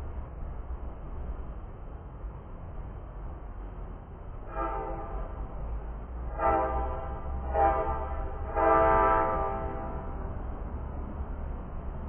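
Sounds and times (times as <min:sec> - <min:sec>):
train horn blasts: 0:04.4 - 0:05.6, 0:06.2 - 0:10.2.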